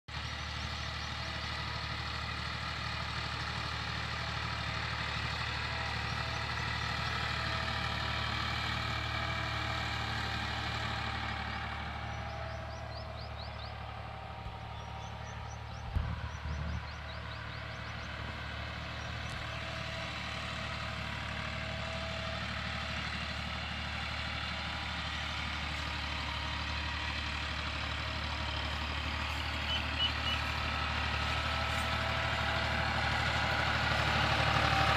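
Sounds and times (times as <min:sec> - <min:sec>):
tractor diesel engine under load: 0:00.0 - 0:34.9
bird chirps: 0:12.1 - 0:13.8, 0:14.6 - 0:18.3, 0:29.6 - 0:30.5.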